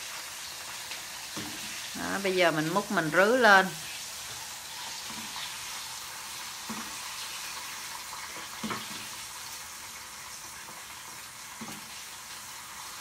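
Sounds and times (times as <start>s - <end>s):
hot oil sizzling: 0.0s - 13.0s.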